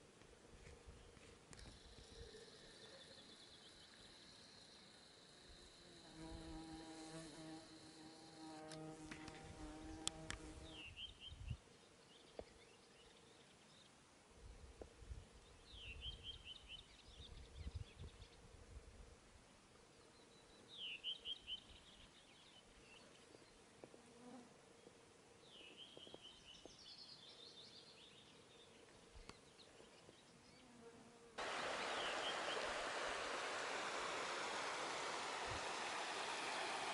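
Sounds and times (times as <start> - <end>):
high buzzing of flying insect: 4.0 - 10.8
small bird singing: 20.1 - 23.6
rushing of flowing water: 31.4 - 36.9.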